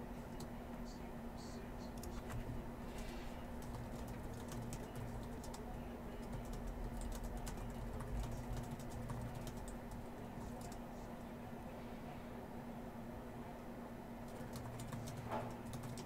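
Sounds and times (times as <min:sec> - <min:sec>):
keyboard typing: 0:02.0 - 0:02.6, 0:03.5 - 0:10.8, 0:14.3 - 0:16.0.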